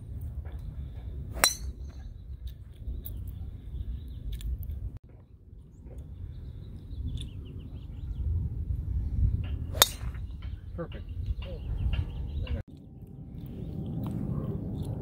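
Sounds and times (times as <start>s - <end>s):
wind rumbling on microphone: 0.0s - 15.0s
bird chirps: 5.6s - 8.5s, 9.7s - 13.8s.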